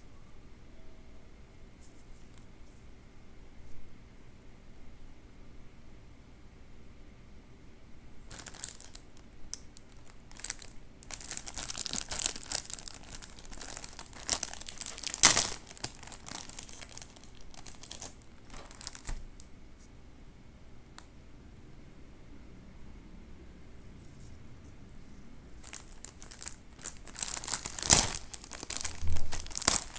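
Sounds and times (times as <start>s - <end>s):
plastic packet crinkling: 8.2s - 19.4s, 25.6s - 29.9s.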